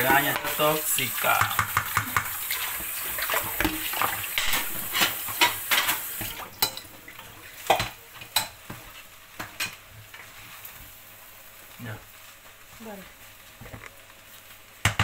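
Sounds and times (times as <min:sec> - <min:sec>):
spatula scraping pan: 0:00.0 - 0:06.8
rice and beans sizzling in pan: 0:00.0 - 0:15.0.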